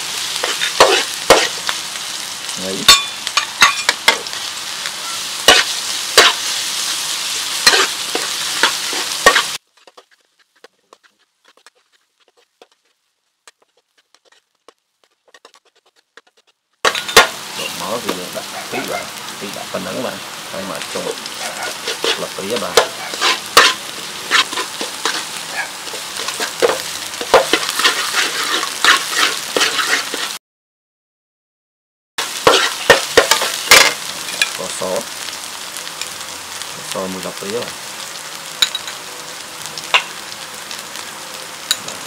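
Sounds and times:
shallots sizzling in oil: 0.0s - 30.4s, 32.2s - 42.0s
metal spatula scraping wok: 0.2s - 1.7s, 2.9s - 19.1s, 20.9s - 30.4s, 32.4s - 34.6s.

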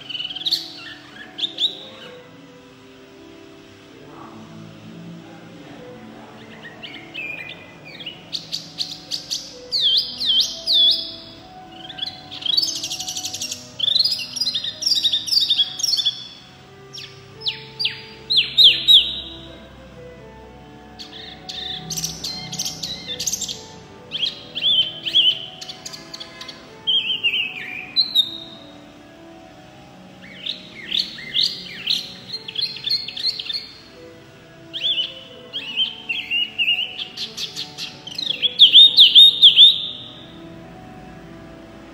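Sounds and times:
songbird whistling song: 0.0s - 3.3s, 5.5s - 20.0s, 20.7s - 29.1s, 30.2s - 40.5s
bird singing whistled phrases: 6.4s - 16.3s, 17.0s - 19.4s, 34.7s - 40.2s.

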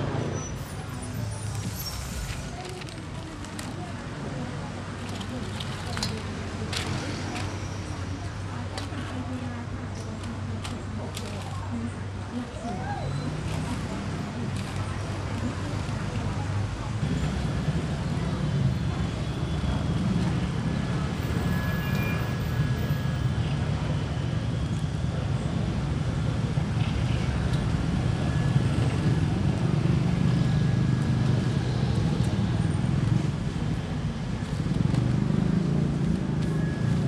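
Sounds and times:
low rumble of street traffic: 0.0s - 37.0s
vehicle engine running close by: 22.8s - 37.0s.

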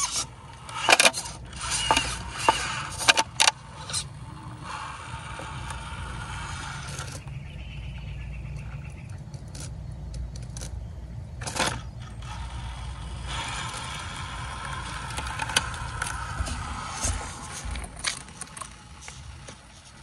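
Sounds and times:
tyres scraping on stone: 0.0s - 7.4s, 11.4s - 20.0s
electric drivetrain whirring: 0.0s - 20.0s.

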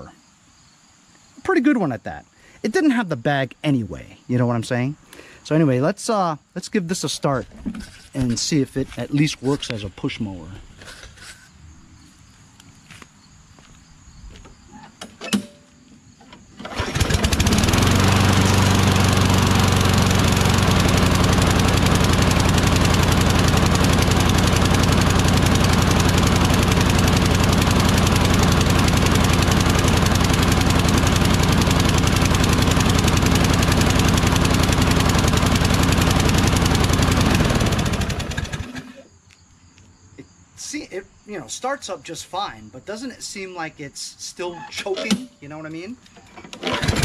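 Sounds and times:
lawn mower engine running: 16.2s - 39.0s, 44.5s - 47.0s.

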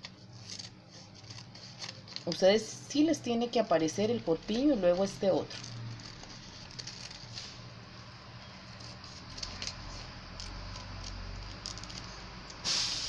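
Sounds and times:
paper rustling: 0.0s - 2.7s, 3.8s - 7.7s, 8.6s - 12.3s.

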